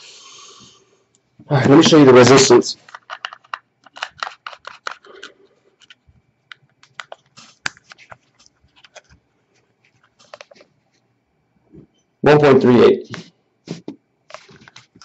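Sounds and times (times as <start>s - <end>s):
small metal clicks and scrapes: 2.8s - 9.2s.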